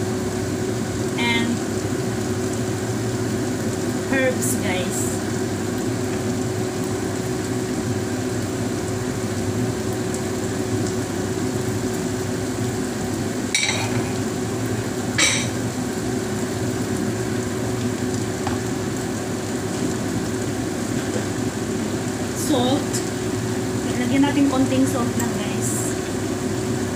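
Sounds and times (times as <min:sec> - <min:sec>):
vegetables sizzling in frying pan: 0:00.0 - 0:26.9
steady hum: 0:12.9 - 0:26.9.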